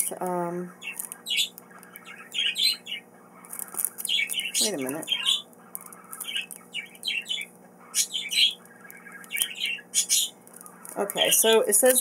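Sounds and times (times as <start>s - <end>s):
pet birds chirping: 0.0s - 12.0s.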